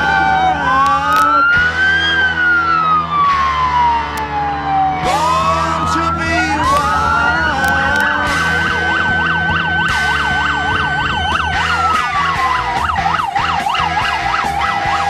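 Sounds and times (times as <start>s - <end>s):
steady high siren: 0.0s - 15.0s
yelping siren: 0.0s - 15.0s.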